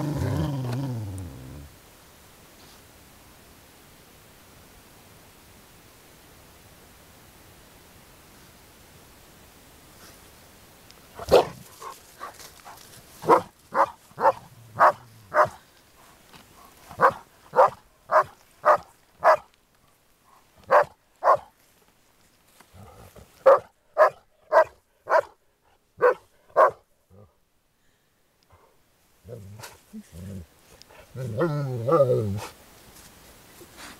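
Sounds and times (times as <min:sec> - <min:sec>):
dog barking: 0:11.2 - 0:12.3, 0:13.2 - 0:15.6, 0:17.0 - 0:19.5, 0:20.7 - 0:21.5, 0:23.4 - 0:25.4, 0:26.0 - 0:26.8.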